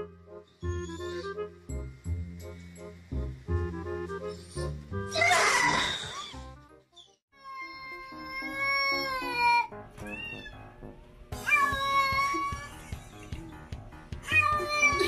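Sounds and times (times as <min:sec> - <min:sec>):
background music: 0:00.0 - 0:15.0
cat yowling: 0:07.4 - 0:10.6, 0:11.4 - 0:12.8, 0:14.3 - 0:15.0.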